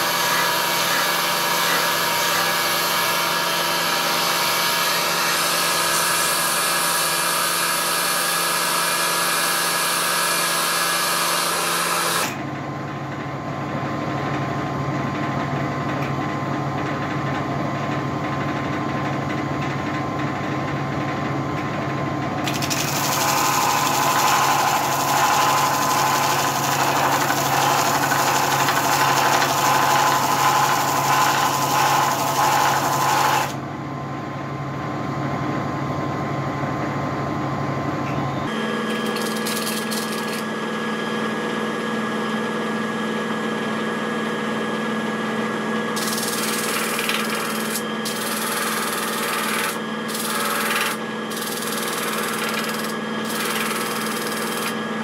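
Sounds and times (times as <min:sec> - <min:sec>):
sanding machine motor hum: 0:00.0 - 0:12.4, 0:22.4 - 0:33.6, 0:38.5 - 0:55.0
wood lathe running: 0:00.0 - 0:12.4, 0:22.4 - 0:33.6, 0:38.5 - 0:40.6, 0:46.0 - 0:55.0.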